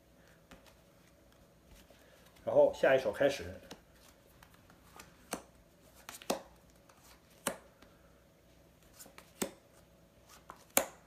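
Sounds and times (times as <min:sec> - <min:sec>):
playing cards slapped on mat: 0:05.0 - 0:06.6, 0:09.0 - 0:09.6, 0:10.5 - 0:11.0.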